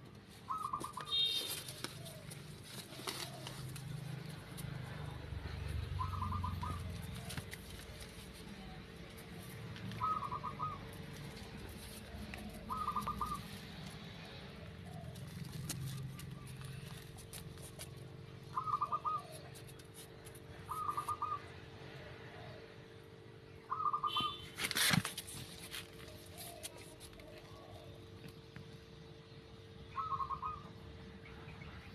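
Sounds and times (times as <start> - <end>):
bird pulsed call: 0.5 - 2.2, 5.9 - 7.0, 10.0 - 10.9, 12.4 - 13.5, 18.5 - 19.5, 20.7 - 21.5, 23.6 - 24.5, 29.9 - 30.7.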